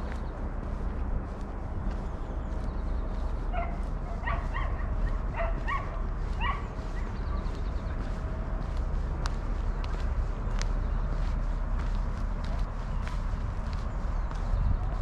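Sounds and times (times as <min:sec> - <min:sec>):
low rumble: 0:00.0 - 0:15.0
dog barking: 0:03.5 - 0:07.1.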